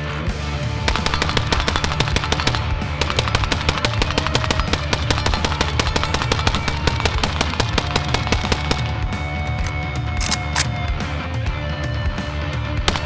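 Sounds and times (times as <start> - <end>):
suppressed rifle rapid shots: 0.9 - 10.5.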